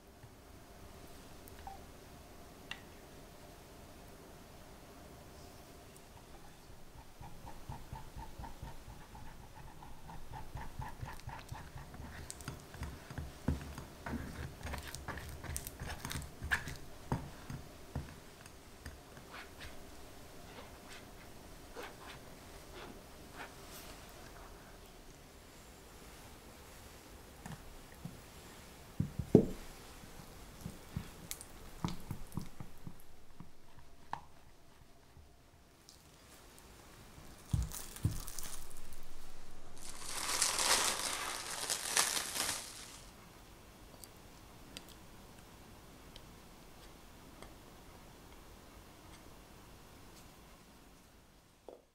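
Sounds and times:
spatula squishing thick curd: 6.1s - 24.0s.

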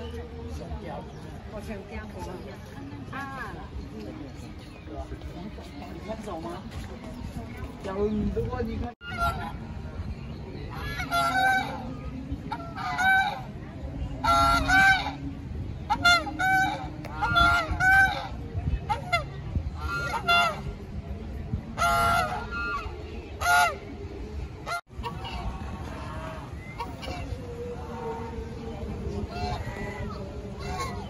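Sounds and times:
geese honking: 9.0s - 9.7s, 10.6s - 20.9s, 21.8s - 24.0s, 24.6s - 31.0s.

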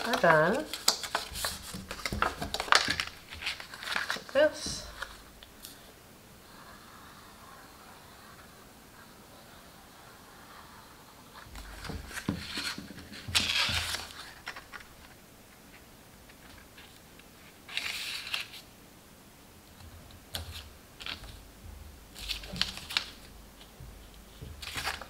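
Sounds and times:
cardstock rustling and scraping: 0.0s - 5.8s, 10.4s - 14.9s, 22.2s - 25.0s.

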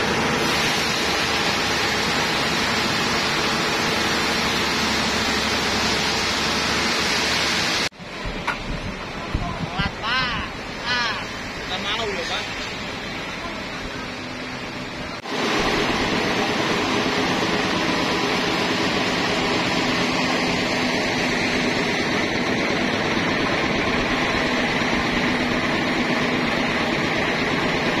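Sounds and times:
machinery hum: 0.0s - 28.0s.

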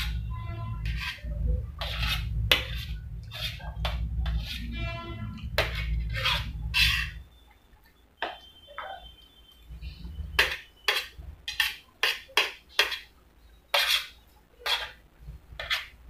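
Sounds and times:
spoon scraping metal plate: 0.0s - 7.3s, 10.3s - 15.0s, 15.6s - 16.0s.

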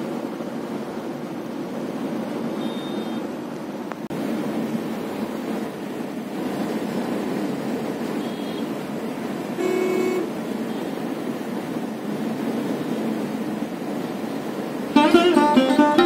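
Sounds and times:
car road and engine noise: 0.0s - 16.0s
vehicle horn: 2.6s - 3.2s, 8.2s - 8.7s, 9.6s - 10.9s.

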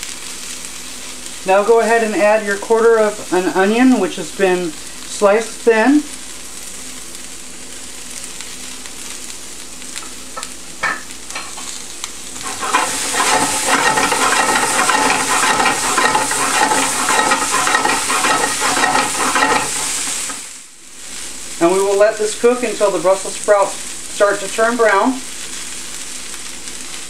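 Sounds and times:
vegetables sizzling in oil: 0.0s - 27.0s
vegetables rattling in shaken pan: 12.4s - 20.6s.

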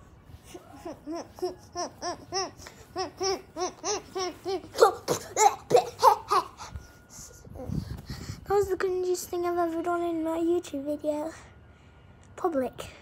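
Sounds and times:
young boy laughing: 0.5s - 6.8s.

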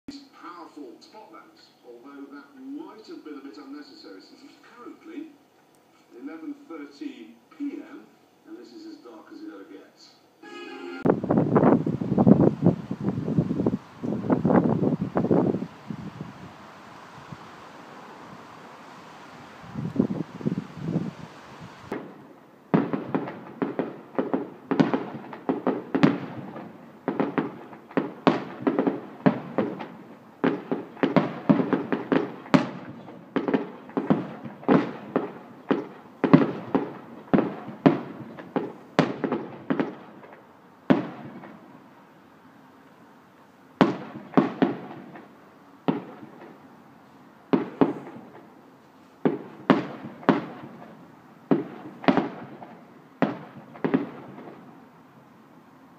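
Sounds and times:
fireworks bursting: 10.4s - 42.0s, 43.8s - 46.8s, 47.5s - 48.6s, 49.2s - 54.9s.

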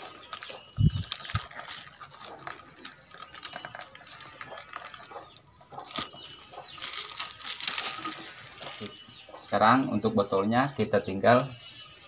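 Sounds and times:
plastic sheeting crinkling: 0.0s - 5.2s, 5.9s - 9.1s.

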